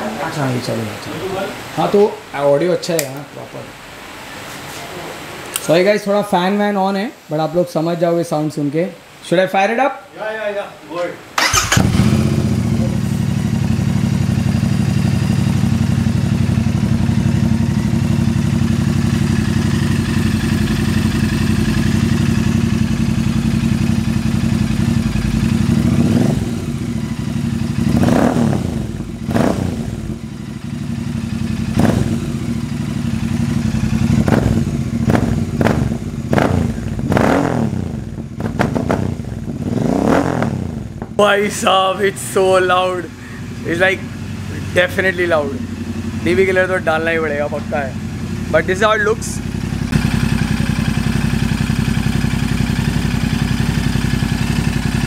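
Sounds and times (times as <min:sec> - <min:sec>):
motorcycle engine idling and revving: 0:11.4 - 0:55.0.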